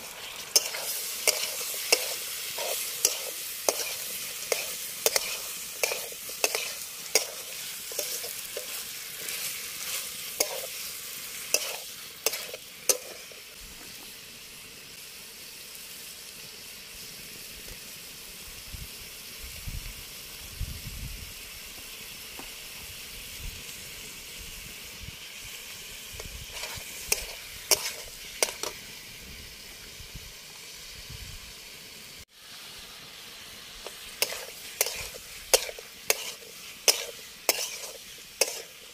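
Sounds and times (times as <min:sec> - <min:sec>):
chicken and peppers sizzling: 0:00.0 - 0:38.9
metal spatula scraping pan: 0:00.3 - 0:13.5, 0:26.4 - 0:28.8, 0:33.8 - 0:38.9.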